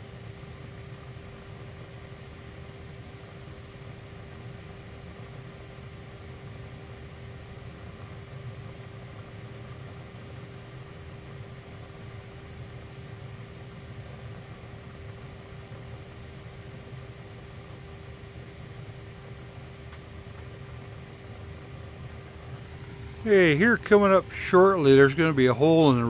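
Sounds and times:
low engine drone: 19.2 - 26.0.

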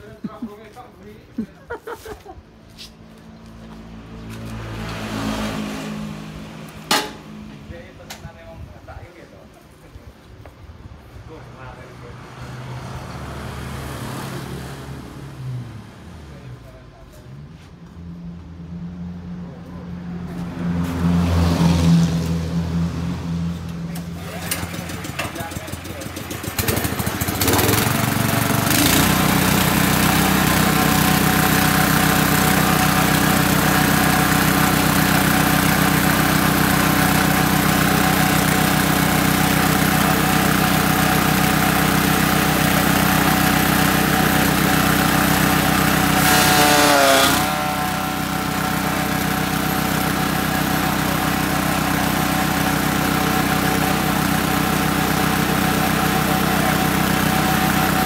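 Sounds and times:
small engine running: 24.1 - 58.0.

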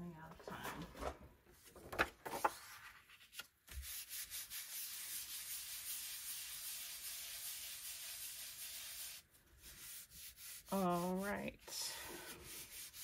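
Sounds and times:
paper handling: 1.6 - 4.0
palms rubbing on paper: 3.7 - 13.0.

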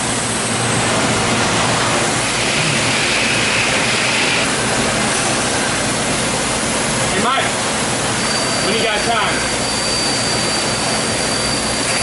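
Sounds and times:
machine shop hiss: 2.1 - 6.0.

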